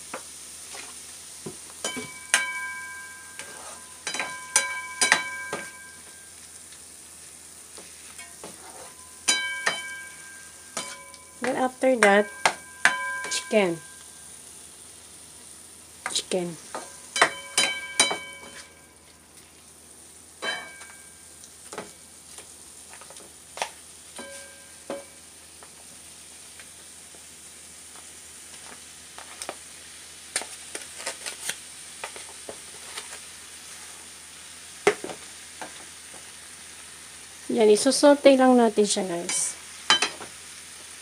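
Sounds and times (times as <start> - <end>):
chicken sizzling in a frying pan: 0.0 - 41.0
plastic spatula scraping a pan: 8.4 - 9.0.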